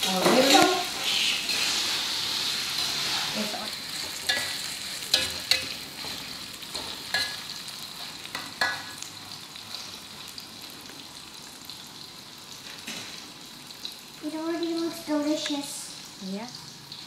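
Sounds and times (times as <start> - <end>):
metal spatula scraping wok: 0.0 - 9.0
food sizzling in hot oil: 0.0 - 17.0.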